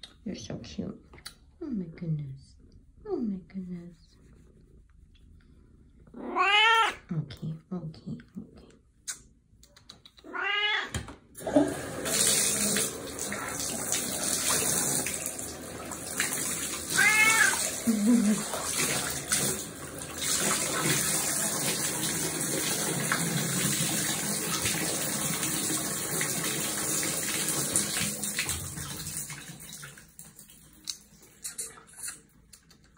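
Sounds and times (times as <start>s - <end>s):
cat meowing: 6.1s - 7.0s, 10.2s - 11.0s, 16.9s - 17.7s
bathtub tap running: 11.0s - 31.0s.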